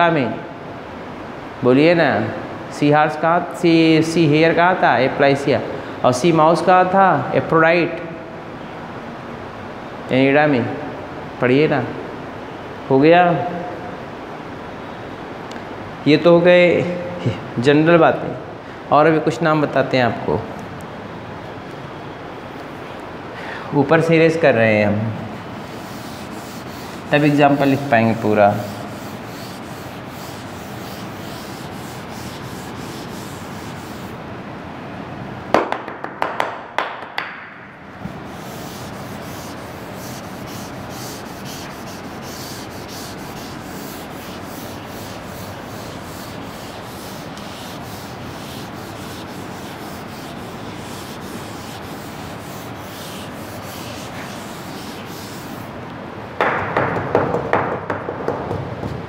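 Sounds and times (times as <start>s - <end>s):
duster rubbing across board: 25.3s - 34.2s, 38.1s - 55.7s
sharp knocks: 56.4s - 59.0s.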